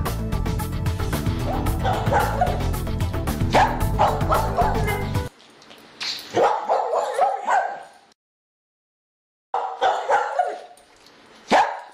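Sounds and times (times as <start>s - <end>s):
dog yipping and barking: 1.4s - 2.8s, 3.5s - 5.2s, 6.3s - 8.0s, 9.6s - 10.8s, 11.5s - 11.9s.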